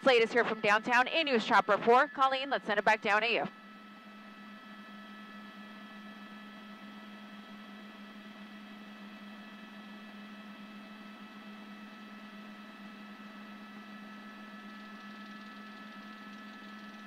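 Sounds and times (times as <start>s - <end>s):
constant high-pitched tones: 0.0s - 17.0s
steady low hum: 0.0s - 17.0s.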